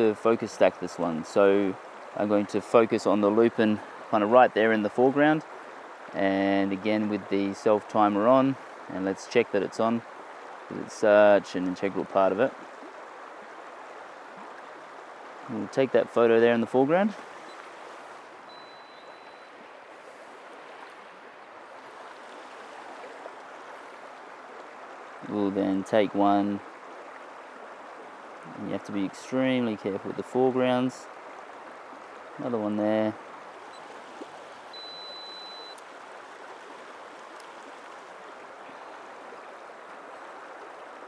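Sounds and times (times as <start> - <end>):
river water rushing: 0.0 - 41.0
high electronic beep: 18.5 - 19.5, 34.7 - 35.8.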